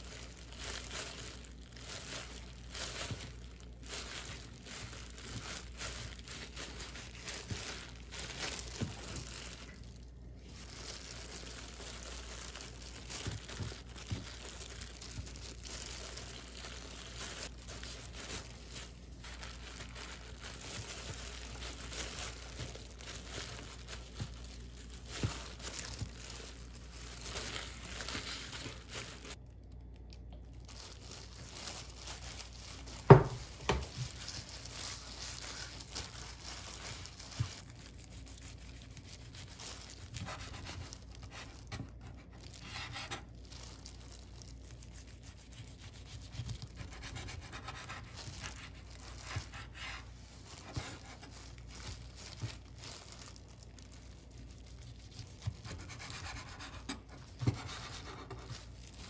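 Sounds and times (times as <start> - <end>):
plastic gloves crinkling: 0.0 - 59.0
knife slicing rolls: 45.2 - 52.7.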